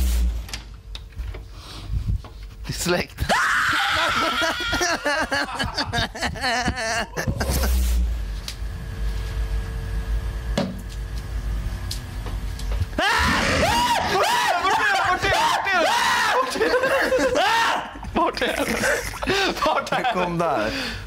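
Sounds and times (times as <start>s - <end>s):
excited high-pitched voices: 13.0s - 19.0s.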